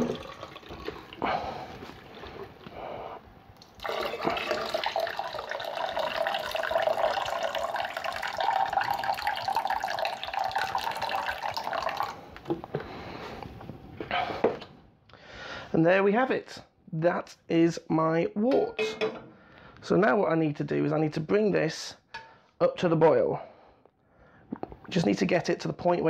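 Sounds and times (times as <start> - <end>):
liquid pouring into pot: 0.0 - 2.5, 3.6 - 12.2.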